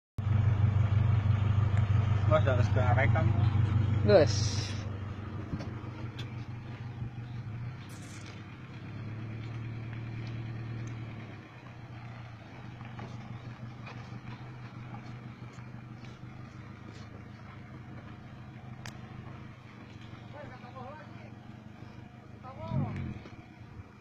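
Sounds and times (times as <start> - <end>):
van engine at low revs: 0.2 - 24.0.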